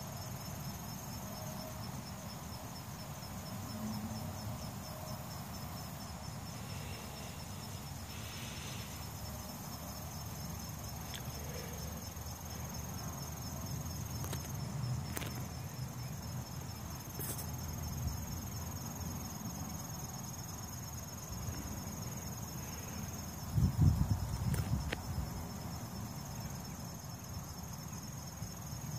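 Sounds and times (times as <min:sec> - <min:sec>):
insects trilling: 0:00.0 - 0:28.9.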